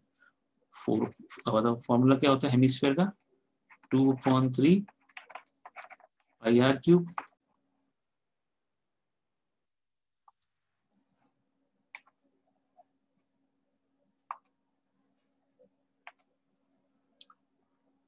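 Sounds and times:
soft clicks: 10.2s - 10.6s, 14.3s - 14.6s, 15.6s - 16.3s, 17.0s - 17.4s.

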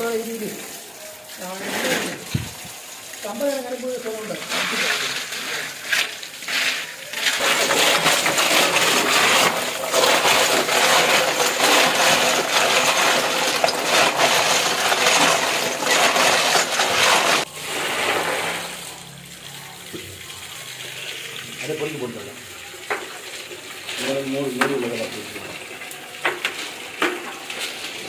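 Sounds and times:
tap water gushing: 0.0s - 28.0s
snail shells clattering: 6.6s - 17.5s.

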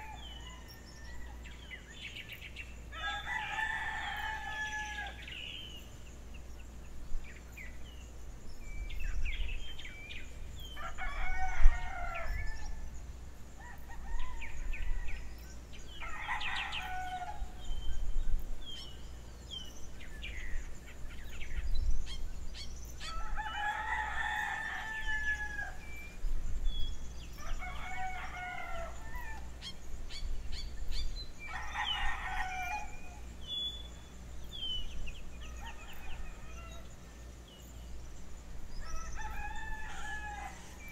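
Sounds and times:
small birds chirping: 0.0s - 40.9s
rooster crowing: 2.9s - 5.3s, 10.8s - 12.9s, 13.6s - 17.6s, 23.0s - 25.8s, 27.4s - 29.5s, 31.4s - 33.2s, 35.4s - 36.9s, 38.8s - 40.9s.

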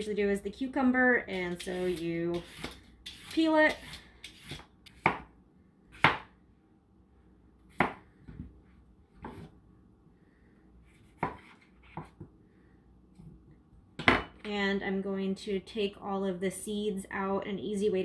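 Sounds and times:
knife chopping on plastic board: 1.6s - 5.3s, 6.0s - 6.3s, 7.7s - 8.0s, 11.1s - 12.2s.

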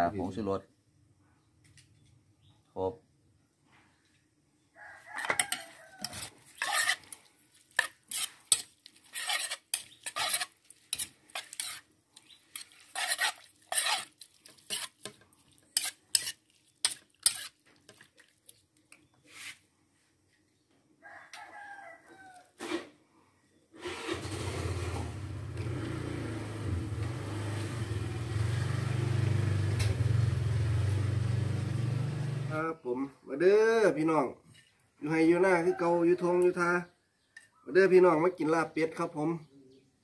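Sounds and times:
rooster crowing: 4.8s - 6.4s, 21.0s - 22.6s, 35.4s - 36.4s
metal spoon scraping a bowl: 5.2s - 11.9s, 12.5s - 17.6s.

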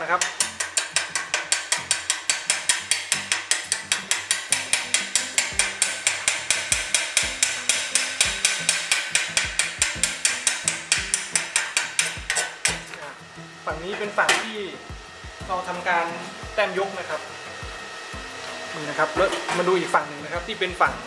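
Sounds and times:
hammer tapping on metal: 0.0s - 13.0s.

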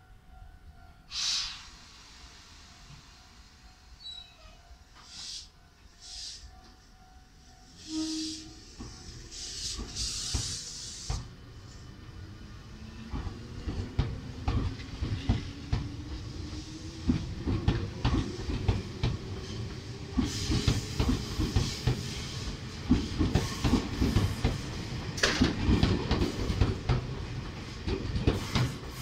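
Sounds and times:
rushing hiss of carriages: 1.1s - 3.6s, 5.0s - 6.5s, 7.7s - 11.3s, 19.4s - 25.5s, 28.2s - 29.0s.

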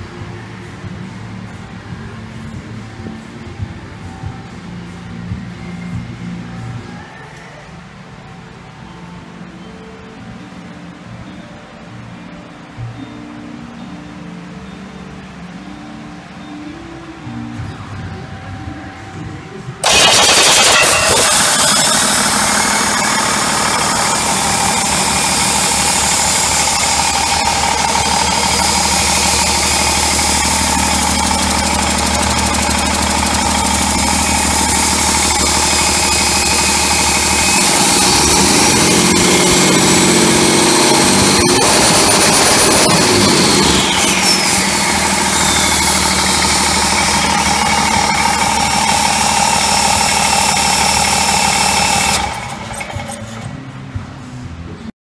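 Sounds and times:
diesel engine idling and revving: 16.8s - 54.9s
turbo whine: 17.5s - 53.7s.

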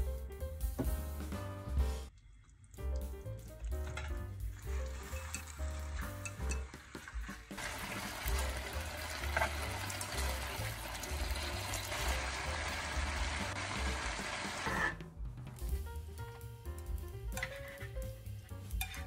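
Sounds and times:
meat sizzling in a frying pan: 7.5s - 14.9s.

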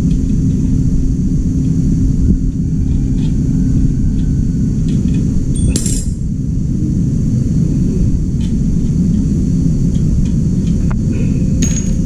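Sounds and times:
steady low rumble: 0.0s - 12.0s
sharp metallic clank: 5.6s - 6.2s.

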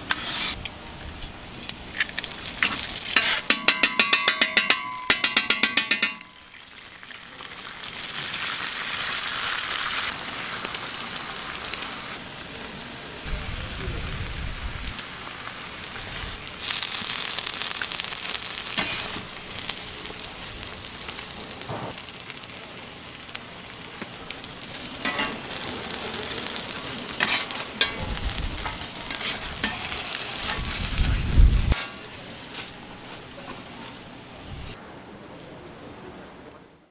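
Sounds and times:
metal spatulas scraping griddle: 0.0s - 0.6s, 2.6s - 6.2s, 18.8s - 19.2s, 25.0s - 25.6s, 27.1s - 30.7s, 31.8s - 33.9s
toast sizzling on a griddle: 1.5s - 4.5s, 5.4s - 33.9s.

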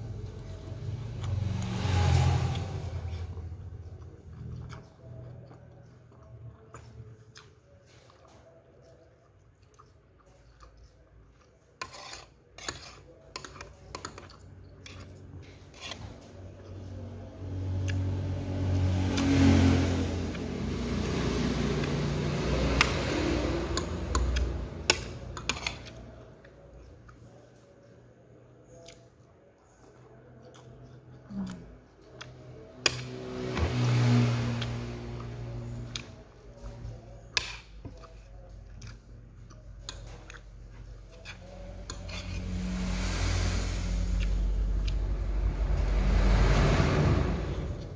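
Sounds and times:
vehicle engine passing by: 0.0s - 5.6s, 14.8s - 26.7s, 31.1s - 38.6s, 39.4s - 47.9s
spoon and fork scraping plate: 11.8s - 16.3s, 41.1s - 42.8s.

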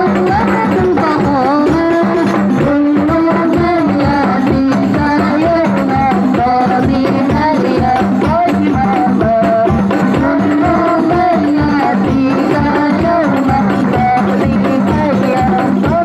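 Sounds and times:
frame drums beating: 0.0s - 16.0s
person singing devotional song: 0.0s - 16.0s.

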